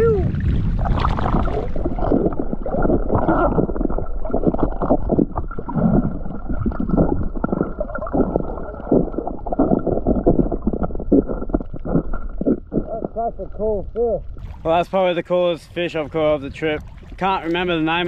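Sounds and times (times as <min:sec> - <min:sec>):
underwater sloshing and gurgling: 0:00.0 - 0:18.0.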